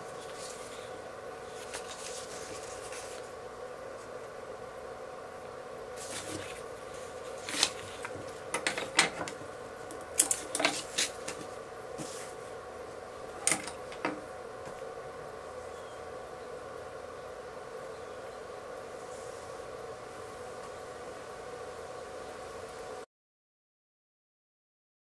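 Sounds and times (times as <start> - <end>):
faint steady hum: 0.0 - 23.1
paper rustling and clicking: 1.5 - 3.3, 6.0 - 9.4, 10.2 - 12.2.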